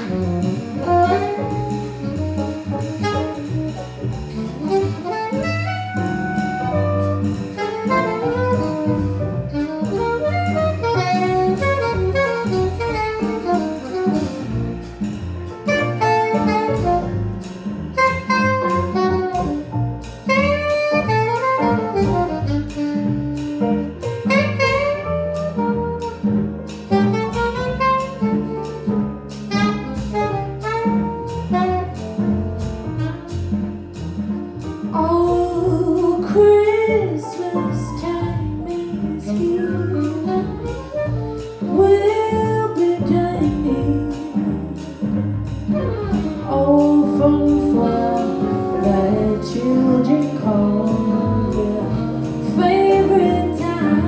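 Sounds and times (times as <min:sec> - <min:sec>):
alto saxophone lead: 0:00.0 - 0:14.9, 0:15.5 - 0:33.9, 0:35.0 - 0:54.0
trumpet: 0:00.0 - 0:34.0, 0:34.9 - 0:54.0
jazz band playing: 0:00.0 - 0:54.0
woman singing: 0:35.0 - 0:40.6, 0:41.7 - 0:45.0, 0:46.5 - 0:54.0.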